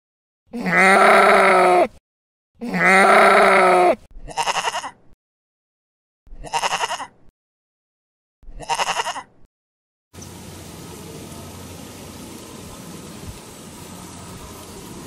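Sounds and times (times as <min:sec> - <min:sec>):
sheep bleating: 0:00.6 - 0:01.9, 0:02.6 - 0:05.0, 0:06.4 - 0:07.1, 0:08.5 - 0:09.3.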